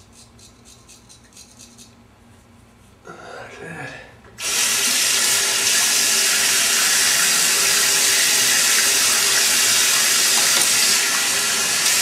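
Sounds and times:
tap water running into sink: 0:04.4 - 0:12.0.

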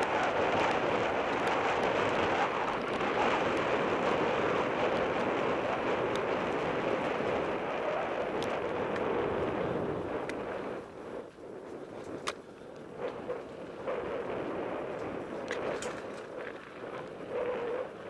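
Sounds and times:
tyre and trail rumble: 0:00.0 - 0:18.0
wind on microphone: 0:00.0 - 0:18.0
bike rattles and knocks: 0:15.0 - 0:16.9.

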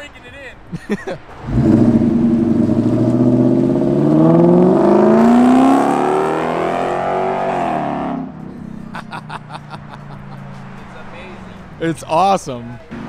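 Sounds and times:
car engine accelerating hard: 0:01.4 - 0:09.2.

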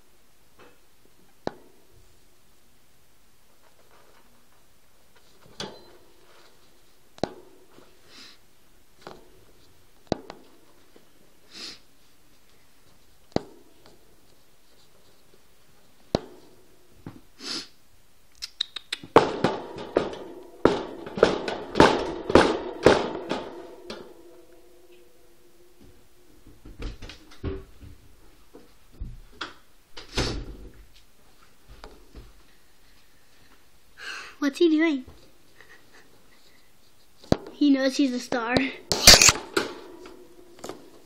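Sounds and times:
sharp clicks: 0:18.3 - 0:19.1
loud knocks and rattles: 0:19.1 - 0:28.0.

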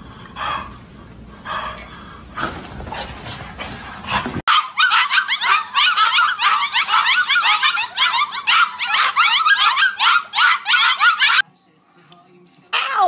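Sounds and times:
puppies yipping and whining: 0:04.4 - 0:11.4.

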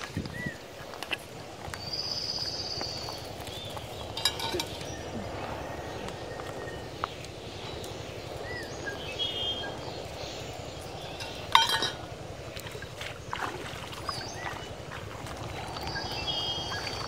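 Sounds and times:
steady background hiss: 0:00.5 - 0:13.3
steel bowl clinking: 0:04.2 - 0:05.0, 0:11.1 - 0:12.1.

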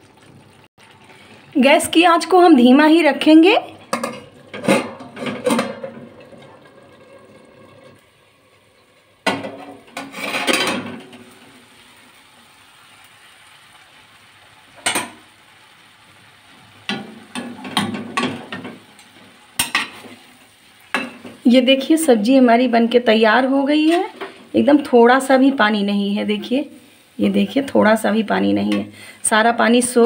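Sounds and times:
metal lid and spoon clattering: 0:03.9 - 0:06.1, 0:09.2 - 0:11.1.

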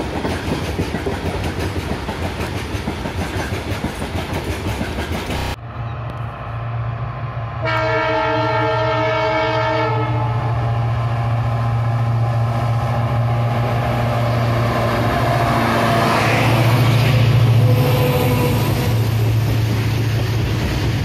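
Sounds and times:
locomotive engine droning: 0:05.3 - 0:21.0
locomotive air horn chord: 0:07.6 - 0:10.6.

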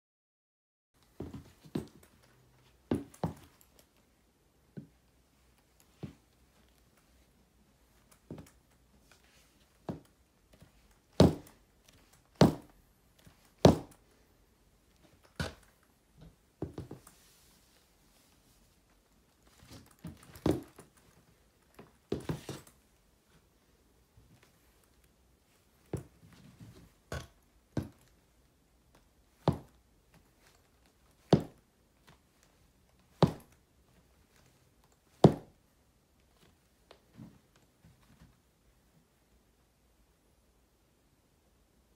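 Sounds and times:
heavy boots stomping on hard floor: 0:11.2 - 0:11.5, 0:12.4 - 0:12.7, 0:13.6 - 0:14.0, 0:31.3 - 0:31.6, 0:33.2 - 0:33.5, 0:35.2 - 0:35.5.

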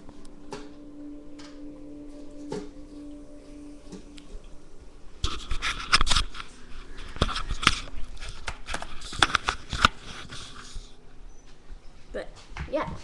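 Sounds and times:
rustling and crackling: 0:05.2 - 0:13.0.

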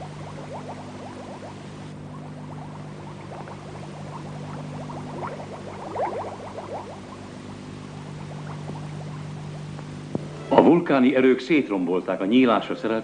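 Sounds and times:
water bubbling and gurgling: 0:00.0 - 0:10.3
steady low hum: 0:00.0 - 0:13.0.

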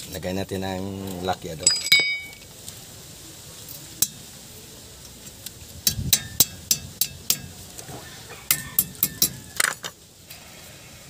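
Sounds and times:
metal clinks of pliers: 0:01.7 - 0:02.4.

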